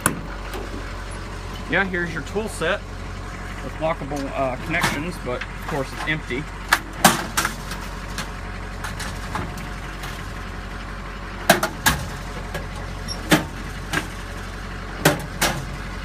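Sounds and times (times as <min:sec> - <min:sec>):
steel drawers clacking: 0:04.0 - 0:10.3, 0:11.5 - 0:14.3, 0:15.0 - 0:15.8.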